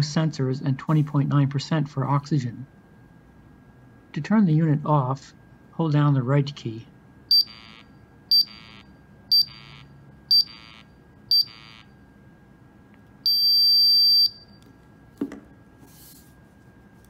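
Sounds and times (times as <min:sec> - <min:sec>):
long beep: 0:07.3 - 0:11.9, 0:13.2 - 0:14.6.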